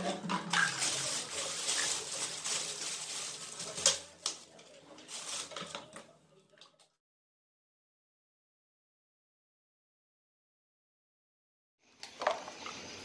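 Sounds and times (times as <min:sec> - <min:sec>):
plastic bottles handled: 0:00.0 - 0:06.9
plastic bag crinkling: 0:00.5 - 0:06.1.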